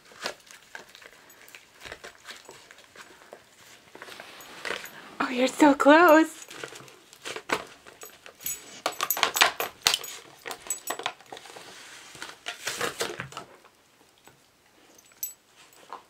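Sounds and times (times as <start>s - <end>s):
dog chewing plastic packaging: 0.0s - 4.8s, 6.5s - 8.3s, 10.2s - 13.7s.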